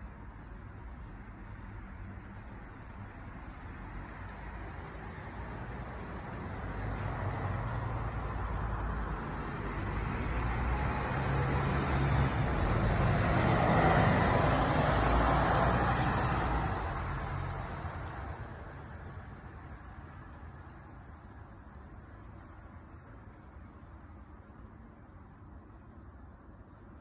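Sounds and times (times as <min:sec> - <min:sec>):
car driving past: 0:09.8 - 0:18.4.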